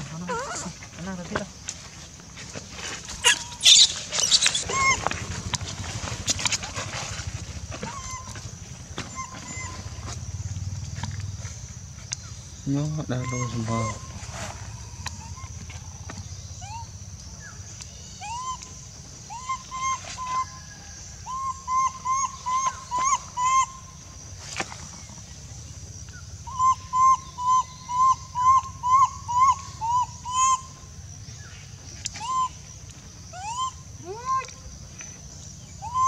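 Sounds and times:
whistle-like animal calls: 32.1 - 32.6, 35.8 - 36.0.

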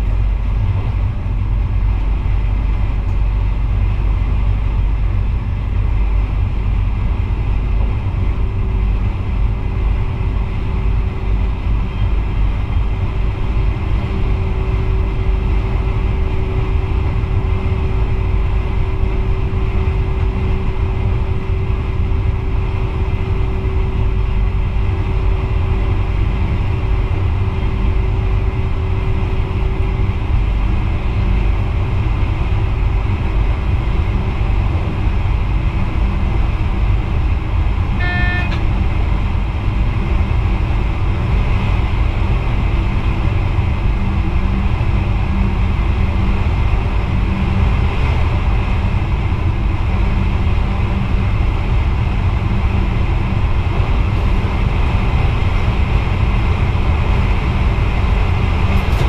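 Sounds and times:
steady hum: 0.0 - 59.0
train wheels rumbling on rail: 0.0 - 59.0
brief pitched signal: 38.0 - 38.6.

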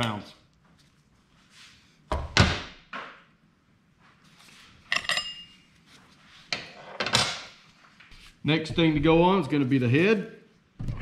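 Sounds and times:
metal tools clinking on workbench: 4.9 - 5.6.

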